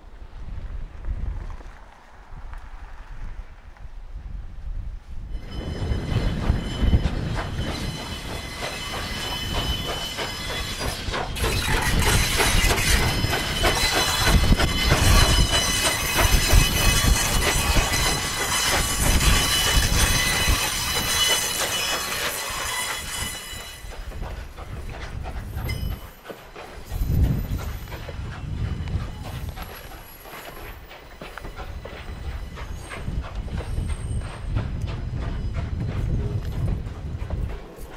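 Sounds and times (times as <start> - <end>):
steam train passing: 0.0 - 37.9
high-pitched wheel flange squeal: 5.3 - 24.1, 28.7 - 34.5
wheels clicking over rail joints: 5.6 - 37.9.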